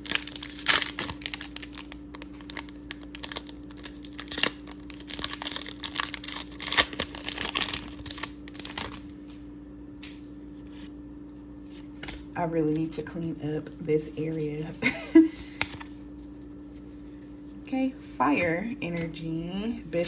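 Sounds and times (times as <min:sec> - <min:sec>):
foil wrapper crinkling and tearing: 0:00.0 - 0:09.2.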